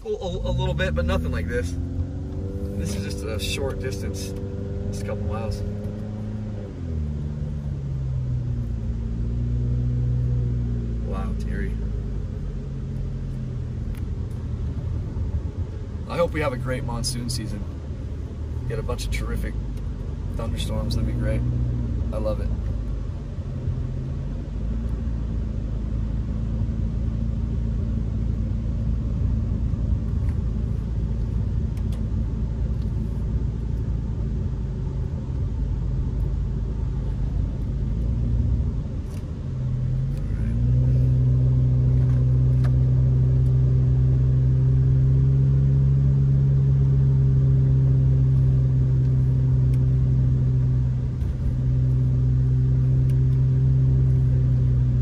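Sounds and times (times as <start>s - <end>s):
car engine and tyre rumble: 0.0s - 55.0s.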